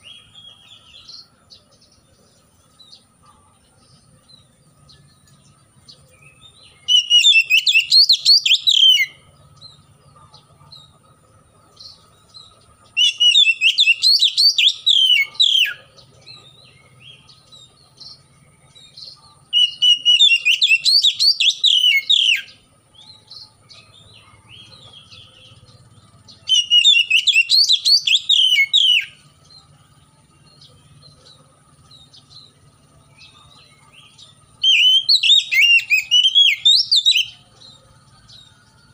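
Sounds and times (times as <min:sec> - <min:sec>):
bird singing: 0:00.0 - 0:38.9.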